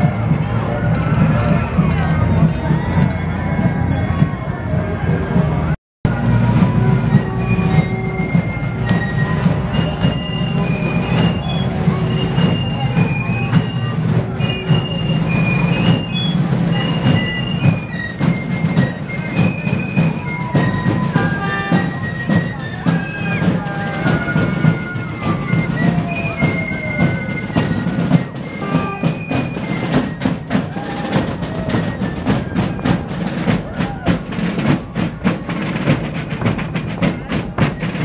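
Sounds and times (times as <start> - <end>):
rapid drumming: 5.0 - 38.0.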